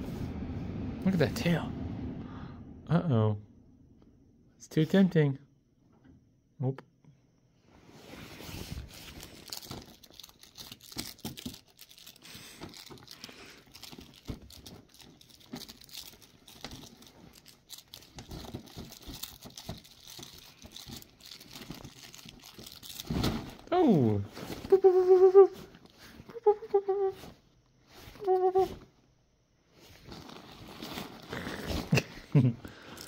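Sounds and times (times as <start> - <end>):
fabric rustling: 7.7 - 28.9, 29.7 - 32.5.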